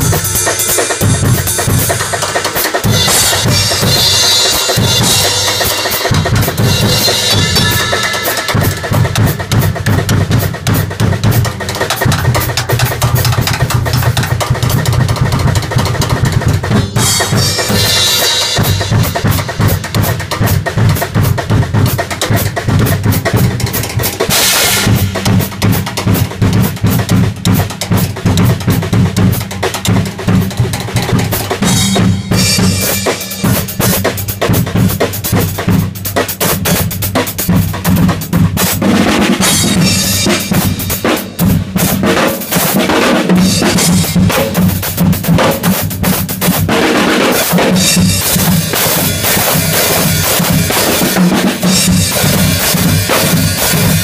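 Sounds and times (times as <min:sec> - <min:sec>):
bass drum: 0:00.0 - 0:42.2, 0:47.6 - 0:54.0
cymbal crashes: 0:31.7 - 0:34.0.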